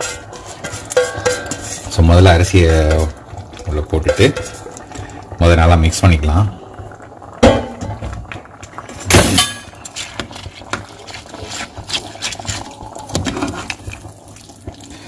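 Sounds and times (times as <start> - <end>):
ladle scraping rice: 0.0 - 2.0, 9.9 - 14.0.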